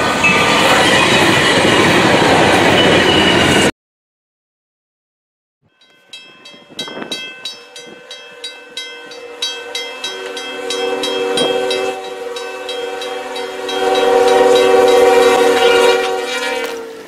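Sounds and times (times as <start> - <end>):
railroad crossing bell ringing: 0.2 - 1.6, 2.6 - 3.7, 5.6 - 17.0
train horn: 7.7 - 17.0.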